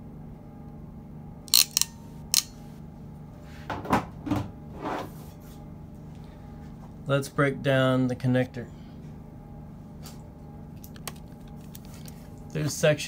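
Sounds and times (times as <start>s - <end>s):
crimping tool metallic clicks: 1.5s - 2.5s.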